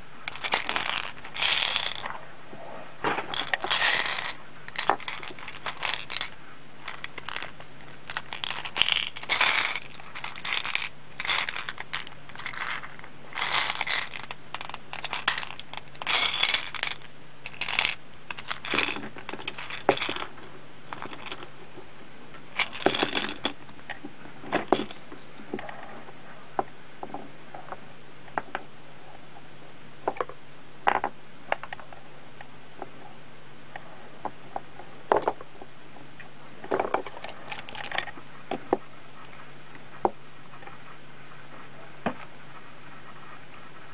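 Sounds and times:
faint steady hum: 0.0s - 43.9s
plastic figures rustling and clicking: 0.2s - 2.2s, 3.0s - 21.5s, 22.6s - 25.8s, 36.7s - 40.8s.

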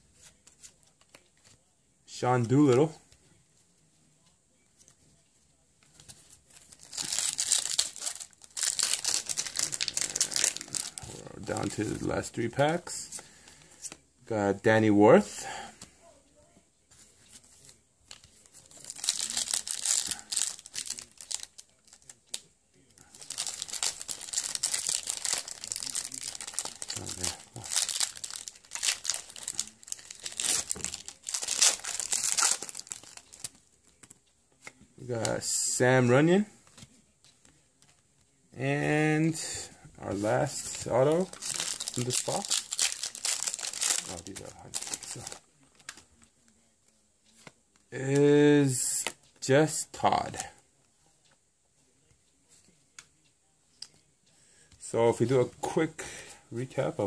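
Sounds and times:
wrapper tearing and crinkling: 6.8s - 11.8s, 18.8s - 22.4s, 23.1s - 33.5s, 40.7s - 46.0s.

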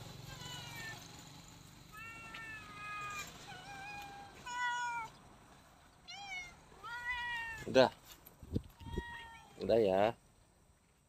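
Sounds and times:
cats meowing: 0.2s - 1.1s, 1.9s - 5.2s, 6.0s - 7.8s, 8.8s - 9.7s.

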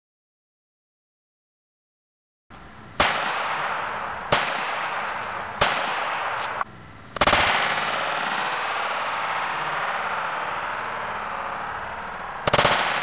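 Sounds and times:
rush of noise: 2.5s - 13.0s
gunshots into water: 3.0s - 6.6s, 12.4s - 13.0s.

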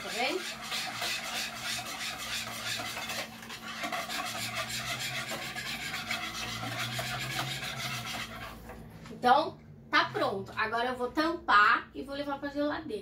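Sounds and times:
spoon scraping plastic tub: 0.0s - 8.9s.

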